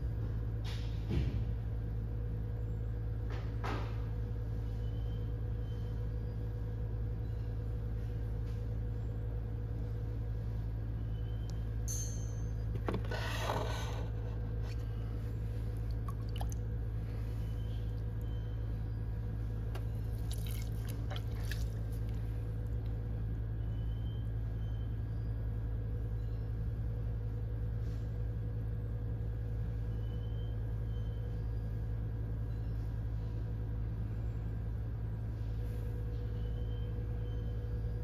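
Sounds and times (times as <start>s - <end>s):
potter's wheel humming: 1.6s - 38.0s
wet clay squishing and scraping: 19.7s - 22.3s.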